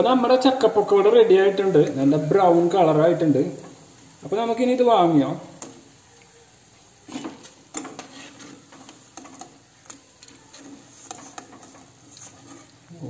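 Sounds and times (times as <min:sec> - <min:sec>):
metal spoon scraping a pan: 0:07.0 - 0:12.9.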